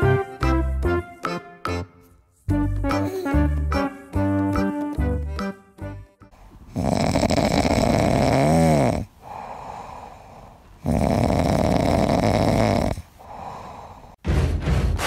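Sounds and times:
quiet breaths: 0:06.4 - 0:14.2
puppy snoring: 0:06.7 - 0:13.4.

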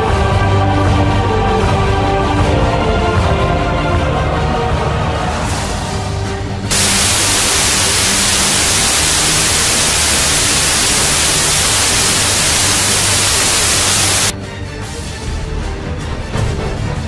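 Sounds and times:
television static hiss: 0:06.7 - 0:14.3.

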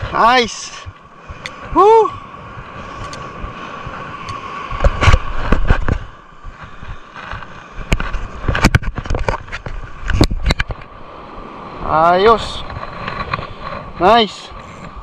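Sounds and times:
hand and clothing rubbing camera: 0:04.7 - 0:10.8.

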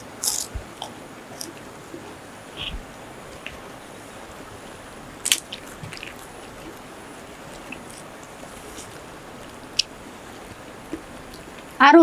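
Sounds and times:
people chewing: 0:00.0 - 0:02.8, 0:05.2 - 0:11.7
steady low hiss: 0:00.0 - 0:12.0
crunches while eating: 0:07.5 - 0:09.0.

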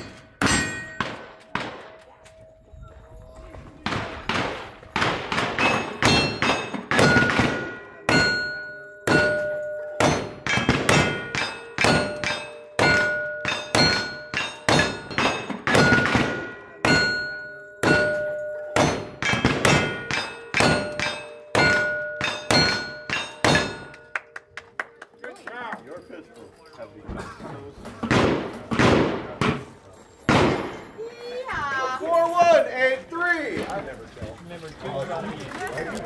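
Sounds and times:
steel targets clanging: 0:00.0 - 0:02.0, 0:04.5 - 0:24.1
gunshots: 0:03.8 - 0:08.4, 0:10.0 - 0:17.2, 0:18.8 - 0:21.9, 0:28.0 - 0:29.7, 0:30.3 - 0:30.9.

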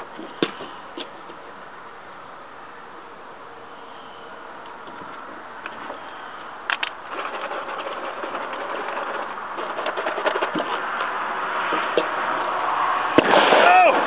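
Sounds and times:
sharp pops: 0:13.2 - 0:13.9.

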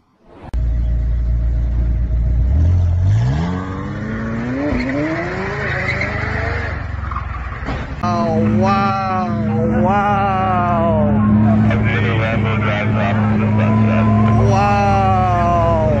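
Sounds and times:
sports car engine revving: 0:00.6 - 0:07.2.

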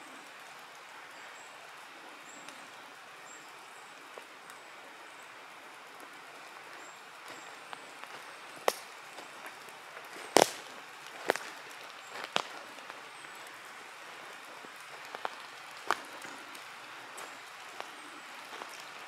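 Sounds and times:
hiss of woodland air: 0:00.0 - 0:19.0
footsteps through undergrowth: 0:06.3 - 0:19.0
dry twigs snapping: 0:07.3 - 0:13.6, 0:14.3 - 0:19.0.

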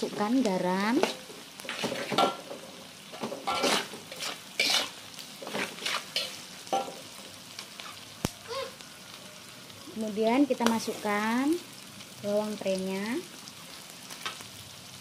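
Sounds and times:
hot oil sizzling: 0:00.0 - 0:15.0
metal spatula scraping wok: 0:01.0 - 0:07.0.

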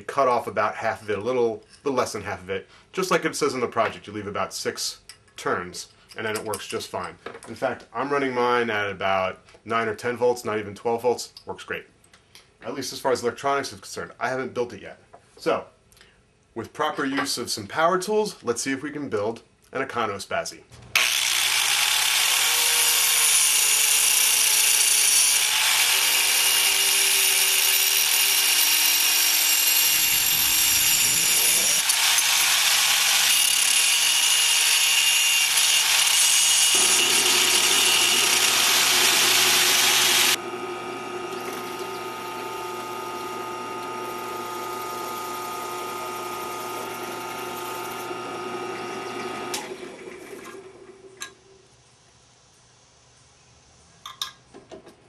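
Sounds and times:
drill press humming: 0:20.9 - 0:49.8
angle grinder grinding metal: 0:21.0 - 0:49.6.

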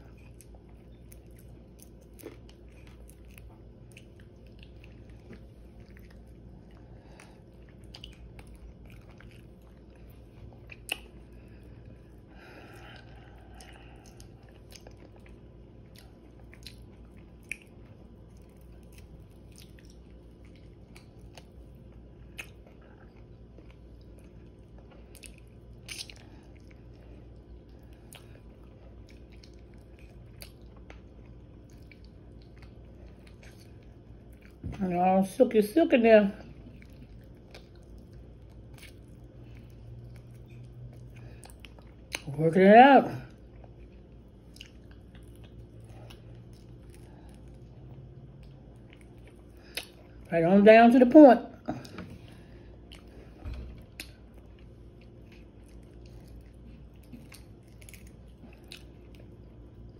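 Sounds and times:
person chewing crunchy food: 0:00.0 - 0:34.7, 0:36.5 - 0:42.3, 0:43.3 - 0:50.3, 0:51.7 - 0:59.9
low hum: 0:00.0 - 0:59.9.

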